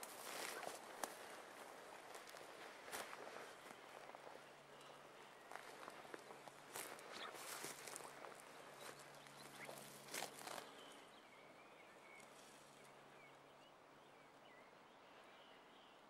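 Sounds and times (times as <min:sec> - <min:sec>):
footsteps rustling through undergrowth: 0:00.0 - 0:11.1
faint bird chirps: 0:03.0 - 0:16.0.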